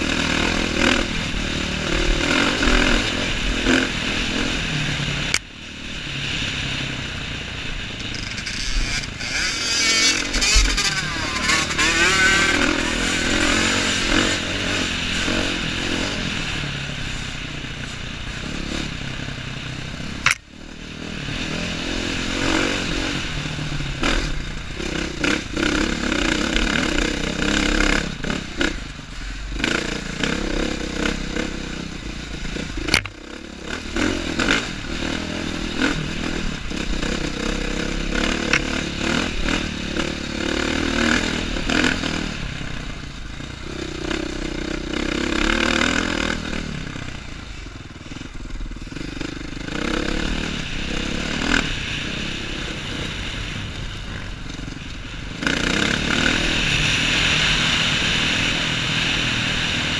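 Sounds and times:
dirt bike engine revving: 0:00.0 - 0:17.6, 0:18.2 - 0:59.9
bike rattling: 0:07.8 - 0:16.1.

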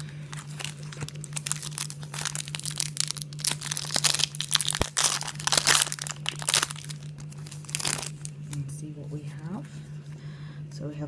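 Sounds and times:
foil packet crinkling and tearing: 0:00.0 - 0:08.7.

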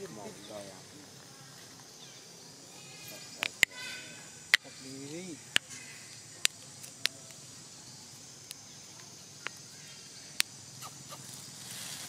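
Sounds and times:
high-pitched insect chirring: 0:01.4 - 0:12.0.

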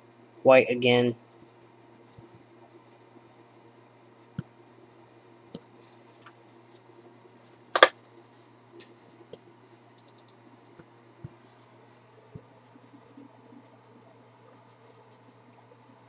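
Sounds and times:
low steady hum: 0:00.0 - 0:16.0
faint high ticks: 0:10.0 - 0:10.4
small clicks and taps: 0:10.0 - 0:10.9.

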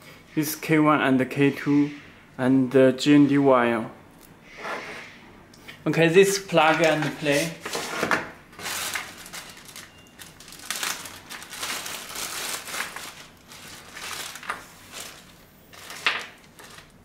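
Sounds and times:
plastic bag crinkling: 0:06.6 - 0:17.0.

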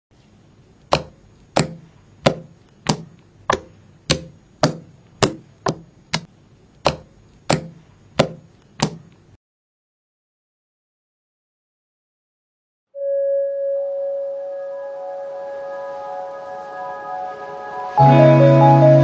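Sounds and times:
hand slapping slime on table: 0:00.9 - 0:09.1.

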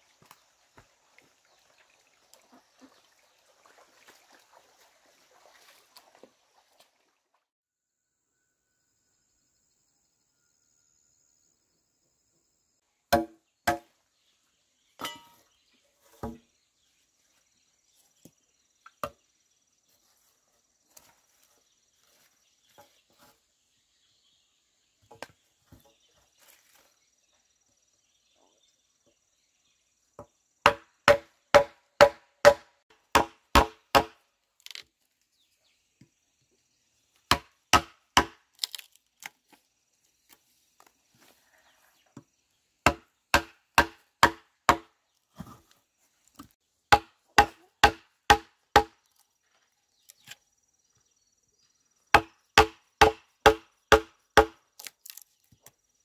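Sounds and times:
blade chopping wood: 0:13.1 - 0:13.9, 0:30.7 - 0:34.8, 0:37.3 - 0:38.8, 0:42.9 - 0:45.5, 0:46.9 - 0:49.0, 0:52.2 - 0:55.2.

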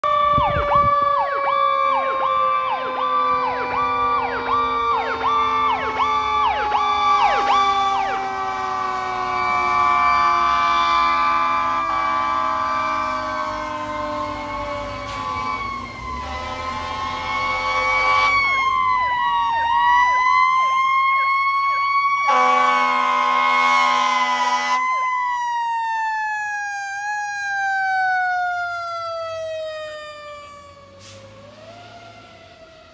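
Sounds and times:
fire truck sirens wailing: 0:00.0 - 0:32.9
rapidly sweeping siren: 0:00.0 - 0:32.9
air horn blast: 0:16.2 - 0:18.6, 0:22.3 - 0:24.8.

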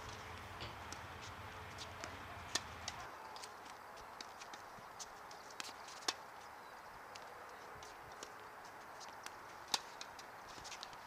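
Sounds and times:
tennis ball struck by racket: 0:00.6 - 0:03.1.

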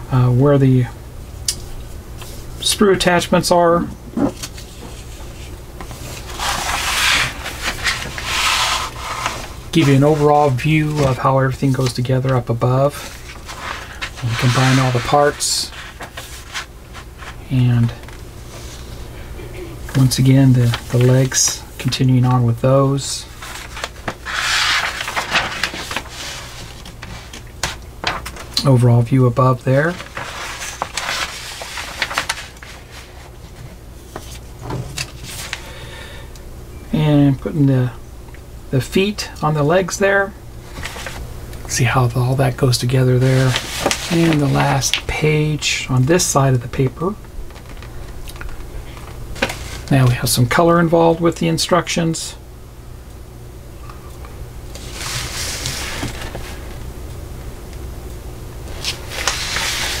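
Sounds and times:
low steady hum: 0:00.0 - 1:00.0
paper rustling and crackling: 0:04.2 - 0:18.9, 0:19.9 - 0:22.0, 0:23.2 - 0:28.7, 0:29.7 - 0:35.7, 0:40.7 - 0:41.3, 0:43.2 - 0:45.1, 0:47.4 - 0:50.1, 0:54.7 - 0:56.8, 0:58.7 - 1:00.0.

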